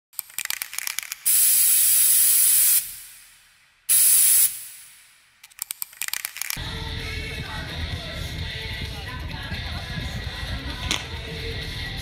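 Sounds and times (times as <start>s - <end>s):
spray can rattling when shaken: 0.2s - 3.2s, 3.9s - 6.6s
spray paint hissing: 1.0s - 5.2s.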